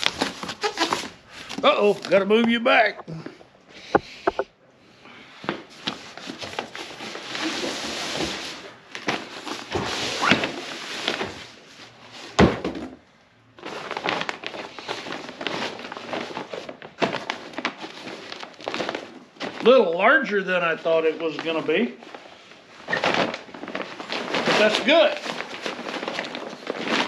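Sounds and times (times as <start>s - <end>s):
cardboard rustling and scraping: 0.0s - 2.4s, 5.7s - 12.4s, 22.8s - 27.0s.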